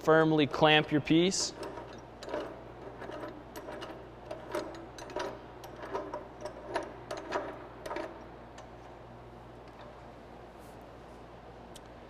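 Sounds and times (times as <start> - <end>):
vise being cranked metallic clicks: 0.5 - 8.8.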